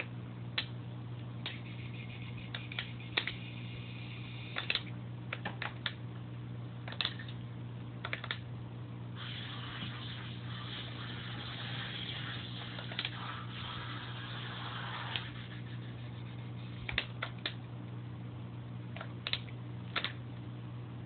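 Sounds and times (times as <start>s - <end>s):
low electrical hum: 0.0s - 21.0s
soft hiss: 9.2s - 16.8s.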